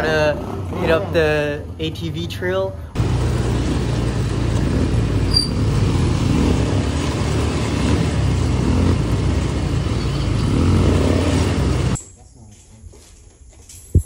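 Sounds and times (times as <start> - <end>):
quad bike engine running: 3.0 - 12.0.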